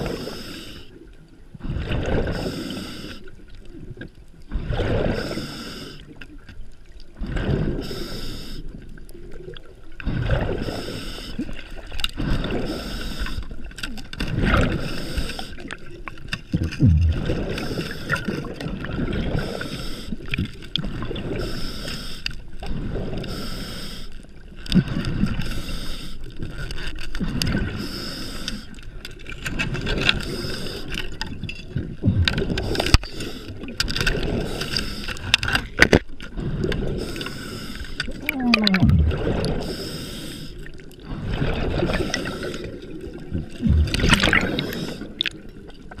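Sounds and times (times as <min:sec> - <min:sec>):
underwater water rushing: 0:00.0 - 0:46.0
low underwater rumbles: 0:15.8 - 0:19.6, 0:31.1 - 0:46.0.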